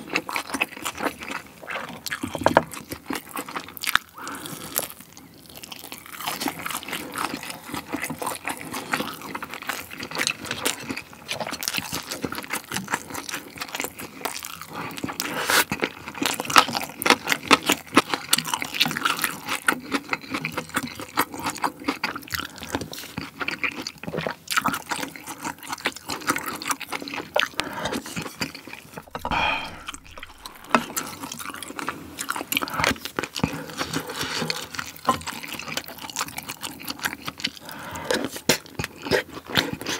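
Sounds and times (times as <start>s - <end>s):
person chewing with lip smacks: 19.9s - 31.0s.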